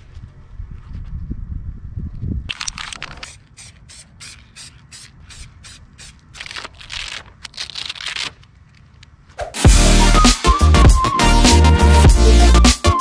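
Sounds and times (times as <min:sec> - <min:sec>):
spray paint can hissing: 0:03.1 - 0:06.7
loud electronic music: 0:09.6 - 0:13.0.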